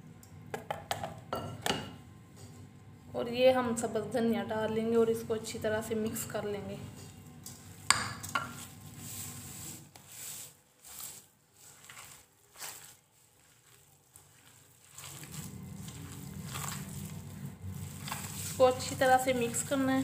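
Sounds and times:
hands squishing meat mixture: 7.4 - 20.0
low hum: 15.1 - 20.0.

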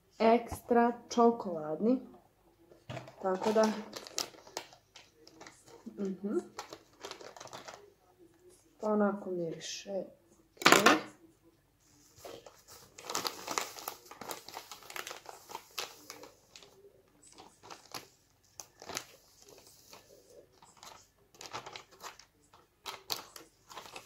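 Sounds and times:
plastic bag crinkling: 2.9 - 7.9, 12.2 - 24.0.

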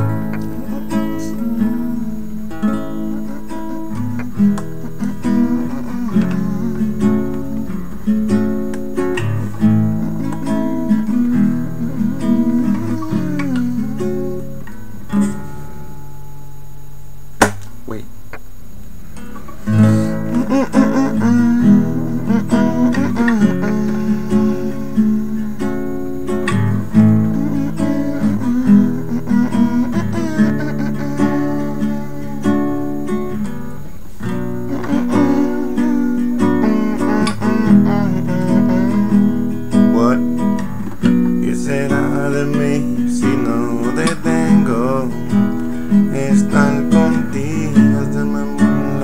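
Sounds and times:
man humming: 0.0 - 14.6, 19.7 - 49.0
acoustic guitar strumming: 0.0 - 49.0
sharp click: 17.4 - 18.5.

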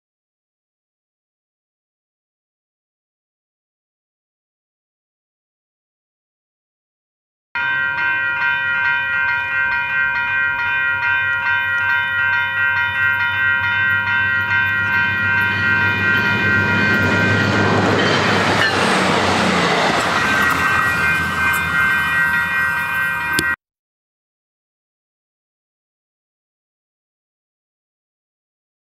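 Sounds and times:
passing train rumble: 7.6 - 23.6
railroad crossing bells ringing: 7.6 - 23.6.

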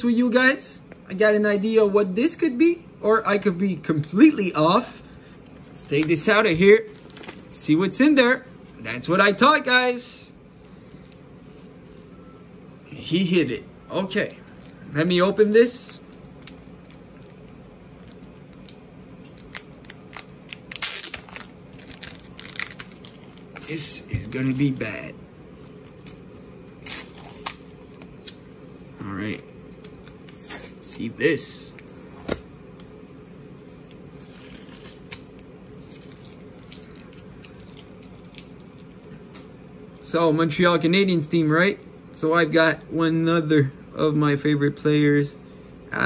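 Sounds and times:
low room hum: 0.0 - 46.0
packaging crinkling and tearing: 5.6 - 7.6, 16.1 - 25.0, 25.6 - 31.0, 33.8 - 39.0
tape crumpling: 5.6 - 7.6, 16.1 - 25.0, 25.6 - 31.1, 33.7 - 39.0
packaging crackling and clicking: 16.1 - 23.7.

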